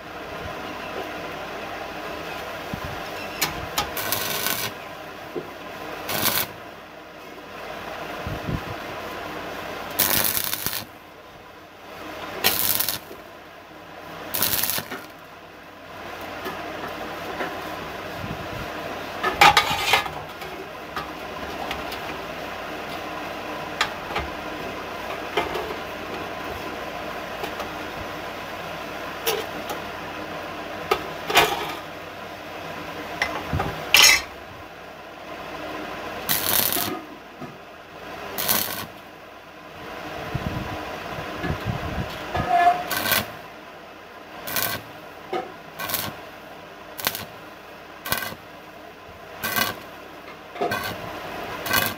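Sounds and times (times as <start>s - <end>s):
arc welding bursts: 3.4s - 4.8s, 5.9s - 6.6s, 9.9s - 11.0s, 12.4s - 13.2s, 14.3s - 15.3s, 36.2s - 37.1s, 38.3s - 39.0s, 42.8s - 43.4s, 44.4s - 45.0s, 45.7s - 46.3s, 46.9s - 47.4s, 48.0s - 48.5s, 49.4s - 50.0s, 50.7s - 51.9s.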